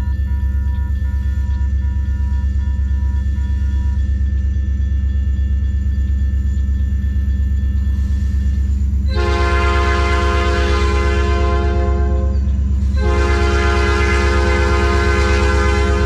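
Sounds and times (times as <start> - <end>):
railroad crossing bell ringing: 0.0 - 16.0
train rumbling: 0.0 - 16.0
locomotive air horn: 9.1 - 16.0.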